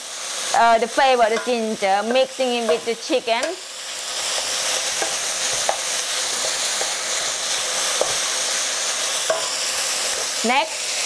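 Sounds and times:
meat sizzling in hot oil: 0:00.0 - 0:11.0
wooden spatula scraping a wok: 0:04.0 - 0:10.4.

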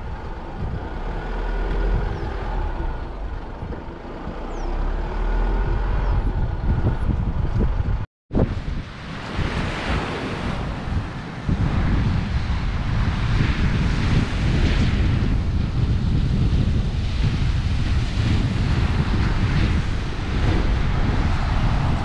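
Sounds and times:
wind buffeting microphone: 0:00.0 - 0:22.0
ocean surf breaking: 0:08.4 - 0:22.0.

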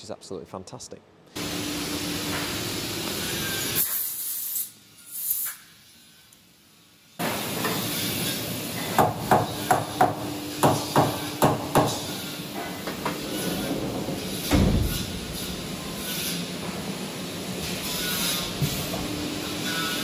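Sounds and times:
sliding guard door thud: 0:11.6 - 0:17.0.

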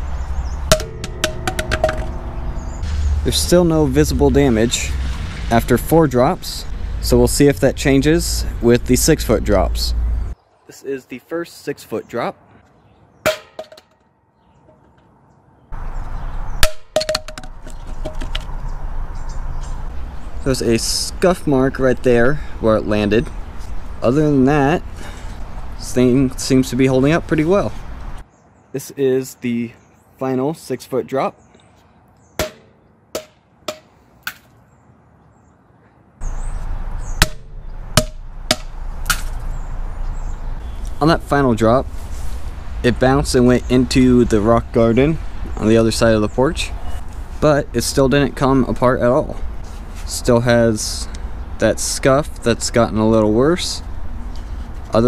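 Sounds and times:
steady outdoor rush: 0:00.0 - 0:12.7, 0:14.7 - 0:28.3, 0:35.7 - 0:55.0
speaker hitting concrete: 0:00.6 - 0:04.7, 0:13.3 - 0:14.0, 0:16.6 - 0:18.5, 0:32.4 - 0:34.5, 0:37.2 - 0:39.5
bounce clatters: 0:00.6 - 0:05.4, 0:13.3 - 0:14.0, 0:16.6 - 0:18.5.

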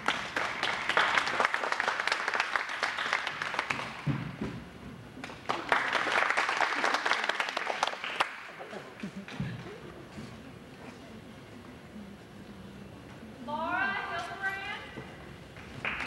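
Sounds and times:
audience applauding: 0:00.0 - 0:04.1, 0:05.2 - 0:09.4, 0:15.8 - 0:16.0.

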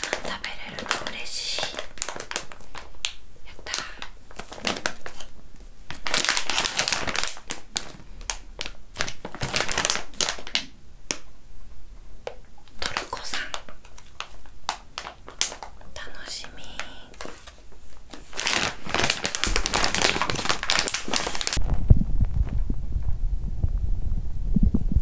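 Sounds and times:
plastic pouch crinkling: 0:00.0 - 0:11.3, 0:12.3 - 0:21.7.

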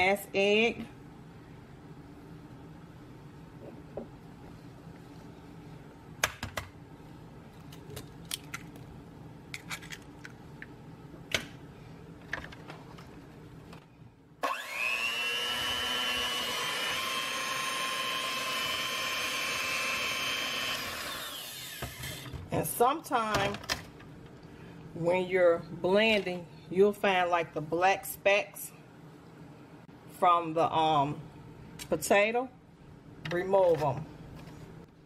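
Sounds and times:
electric hand mixer whine: 0:14.4 - 0:22.3.

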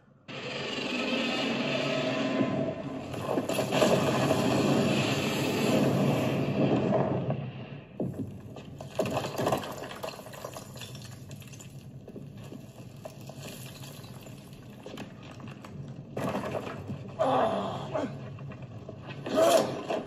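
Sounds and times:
dense rumble with clatter: 0:02.1 - 0:17.3.

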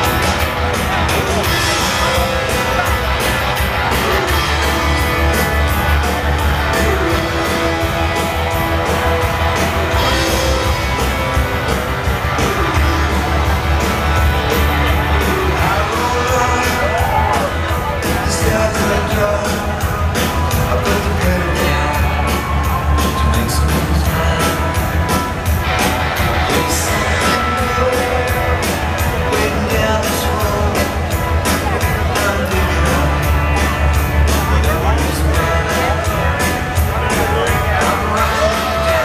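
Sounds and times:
drums steady beat: 0:00.0 - 0:39.0
electric guitar: 0:00.0 - 0:39.0
lead vocal singing: 0:15.2 - 0:22.5, 0:26.4 - 0:33.2, 0:37.2 - 0:39.0.

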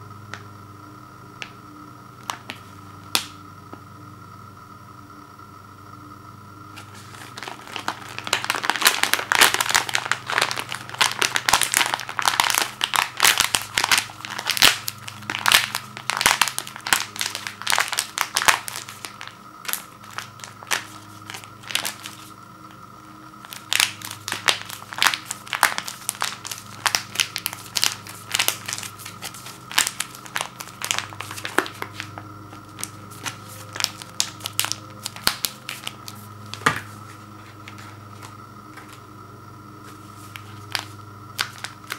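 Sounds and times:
faint steady hum: 0:00.0 - 0:41.9
plastic pouch crinkling: 0:06.8 - 0:22.3, 0:23.4 - 0:36.7, 0:39.9 - 0:41.9.

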